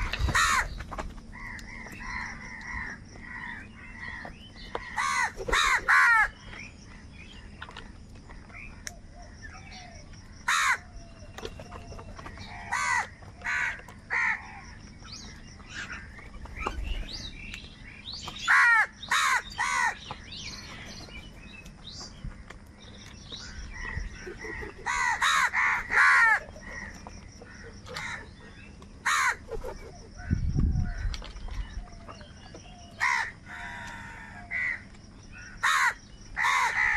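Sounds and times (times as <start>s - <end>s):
crows cawing: 0.0s - 7.0s, 10.4s - 11.1s, 12.3s - 14.8s, 18.4s - 20.2s, 23.4s - 29.6s, 32.9s - 36.9s.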